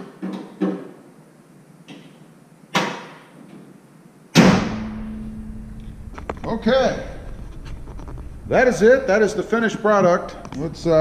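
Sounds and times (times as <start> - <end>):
truck hood slammed shut: 4.4 - 5.1
sharp knock: 4.4 - 5.3.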